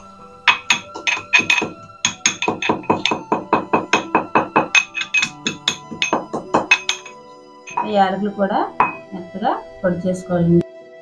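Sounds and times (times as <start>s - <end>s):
metal pestle pounding in mortar: 0.5s - 8.1s, 8.8s - 9.2s.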